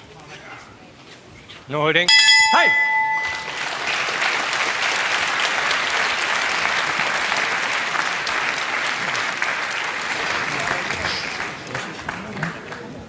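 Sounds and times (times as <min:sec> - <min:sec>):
crowd applauding: 0:02.8 - 0:13.0.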